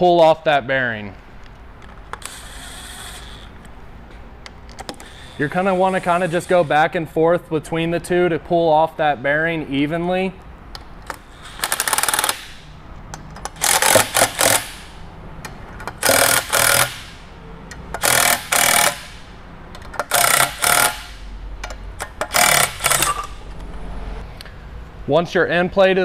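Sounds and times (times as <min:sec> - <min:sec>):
impact wrench hammering: 0:11.0 - 0:23.5.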